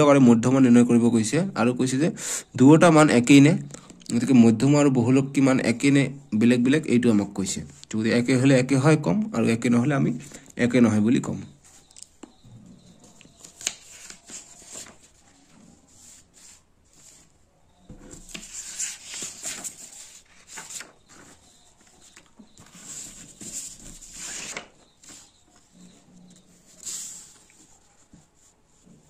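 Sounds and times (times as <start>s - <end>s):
paper rustling and sliding: 13.1s - 29.0s.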